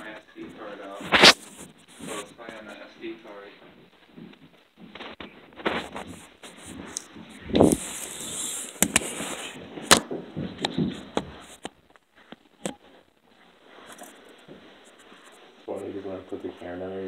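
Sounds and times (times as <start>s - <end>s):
footsteps on wooden floor: 3.6s - 12.4s, 13.9s - 15.0s.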